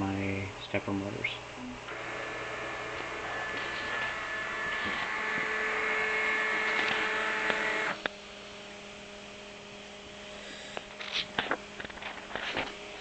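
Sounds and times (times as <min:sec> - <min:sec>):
faint steady hum: 0:00.0 - 0:13.0
stepper motors whining: 0:01.6 - 0:08.1.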